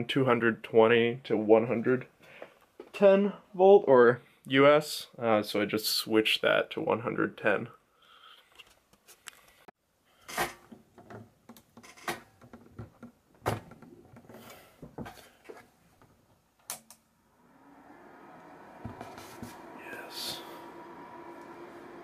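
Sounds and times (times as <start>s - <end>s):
power supply hum: 17.0s - 22.0s.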